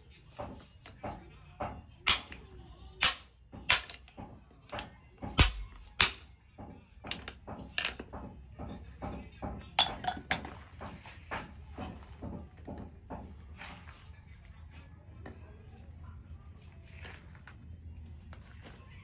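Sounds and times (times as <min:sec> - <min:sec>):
hammer knocking wooden handle: 0:00.4 - 0:13.3.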